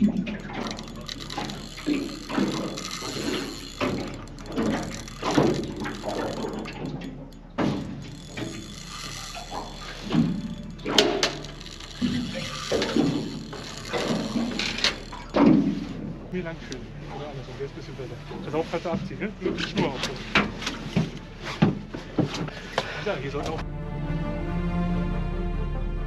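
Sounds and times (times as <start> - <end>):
fishing reel drag clicking: 0.1 - 16.8.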